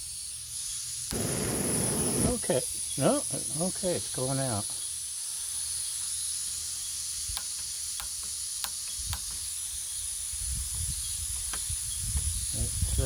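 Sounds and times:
gas hissing from stove: 0.5s - 5.4s
wind rumble on microphone: 10.3s - 13.0s.

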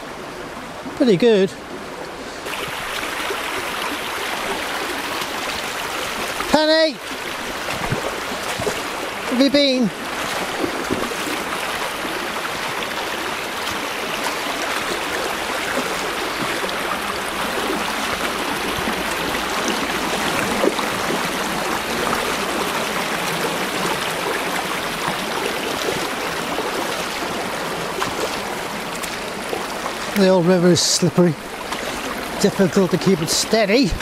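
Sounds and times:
stream rushing over stones: 0.0s - 34.0s
dog splashing through water: 7.4s - 9.2s, 10.0s - 30.2s.

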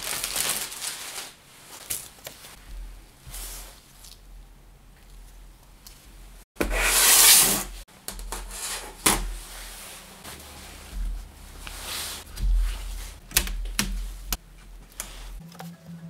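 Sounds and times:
gloved hands rubbing and rustling: 0.0s - 4.4s, 9.2s - 15.5s.

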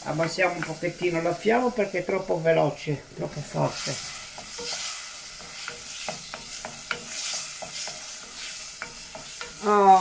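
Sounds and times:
tomatoes sizzling in a pot: 0.0s - 10.0s
wooden spoon scraping a pot: 3.3s - 9.6s.

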